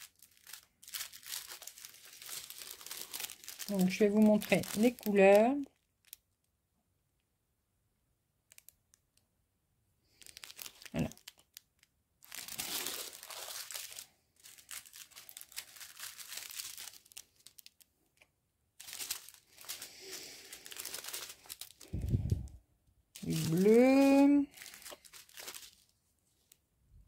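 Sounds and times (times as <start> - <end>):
plastic bags crinkling: 0.0 - 6.2, 10.1 - 17.9, 18.8 - 22.6, 23.2 - 26.6.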